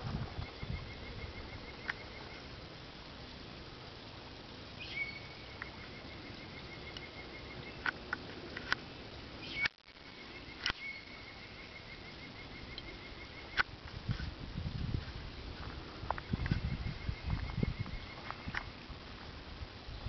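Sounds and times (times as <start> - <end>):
bird chirps: 0.4 - 2.5, 4.8 - 8.0, 9.4 - 13.6, 16.2 - 18.7
bird trilling: 4.8 - 7.9, 9.4 - 13.6.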